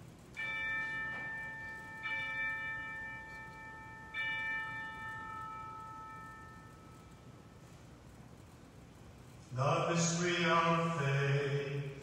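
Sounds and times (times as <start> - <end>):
bell ringing: 0.2 - 8.5.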